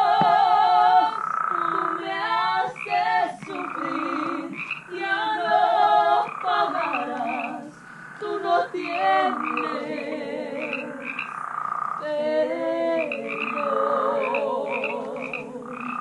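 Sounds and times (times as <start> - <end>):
frogs calling: 0.0 - 16.0.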